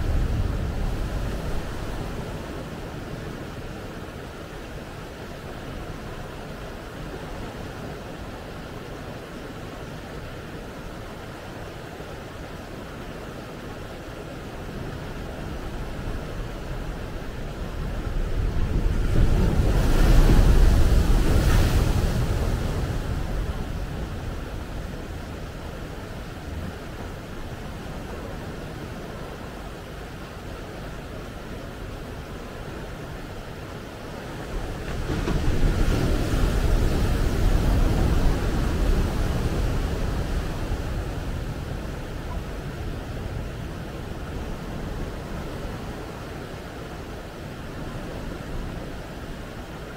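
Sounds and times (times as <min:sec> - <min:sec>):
ocean waves breaking on rocks: 0:00.0 - 0:03.9, 0:14.5 - 0:49.9
wave breaking on beach: 0:18.5 - 0:25.4, 0:34.2 - 0:46.2.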